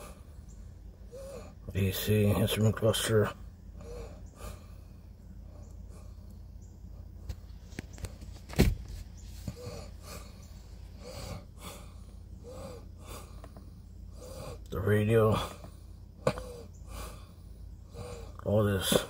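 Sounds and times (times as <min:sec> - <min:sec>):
low hum inside car: 0:00.0 - 0:19.0
faint vocal murmurs: 0:09.5 - 0:19.0.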